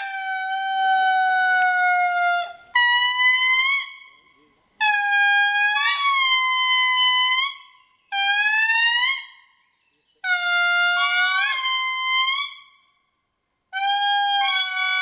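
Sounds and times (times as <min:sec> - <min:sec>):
indri singing wailing notes: 0:00.0 - 0:13.0, 0:13.7 - 0:15.0.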